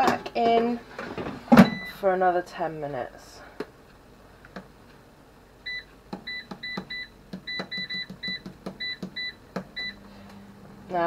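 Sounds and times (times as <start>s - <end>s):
control panel beeps: 5.7s - 10.0s.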